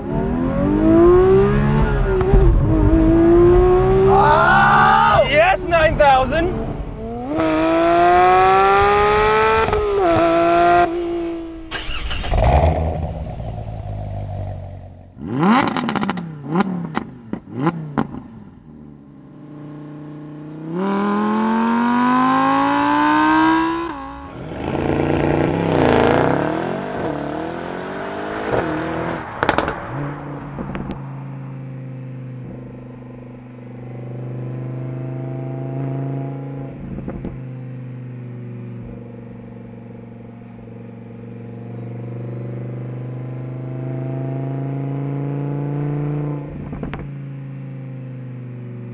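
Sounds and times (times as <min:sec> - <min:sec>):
sports car drive-by drone: 0:00.0 - 0:48.9
car exhaust revving: 0:05.8 - 0:18.6, 0:20.6 - 0:38.0.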